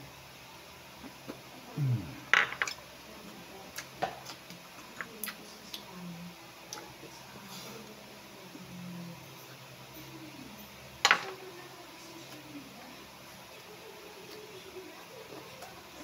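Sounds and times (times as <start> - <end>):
wet chewing: 3.6 - 5.9.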